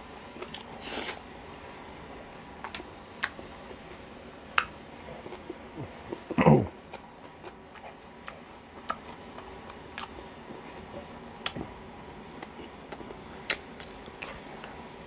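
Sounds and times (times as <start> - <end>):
faint steady hum: 0.0 - 15.0
mouth chewing clicks and smacks: 2.6 - 4.0, 4.6 - 11.8, 12.4 - 14.8.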